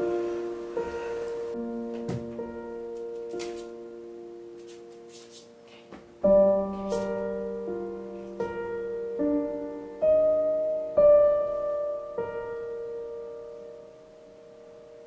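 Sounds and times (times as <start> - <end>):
gentle piano music: 0.0 - 15.0.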